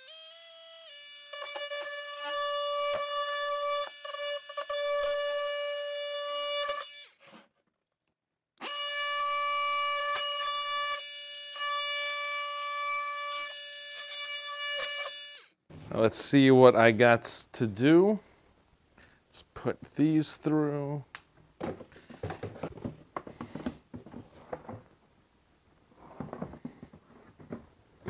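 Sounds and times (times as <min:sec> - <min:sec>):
oscillating multi-tool whine: 0:00.0 - 0:07.2, 0:08.6 - 0:15.5.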